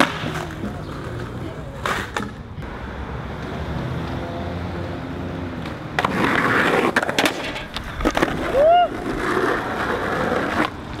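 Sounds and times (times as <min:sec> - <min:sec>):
skateboard scraping and clacking: 0:00.0 - 0:02.7, 0:05.6 - 0:11.0
skateboard wheels rolling on pavement: 0:00.0 - 0:11.0.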